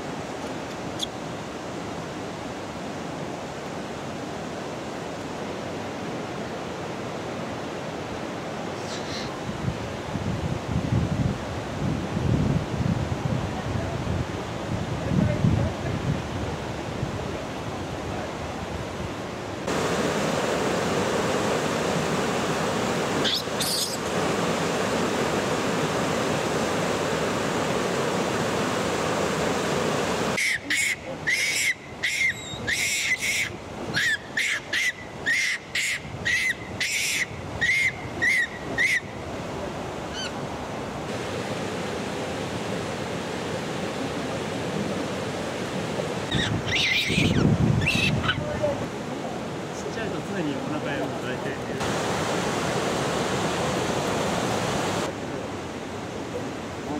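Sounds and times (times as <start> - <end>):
short high repeated calls: 23.2 - 24.1, 30.4 - 39.1.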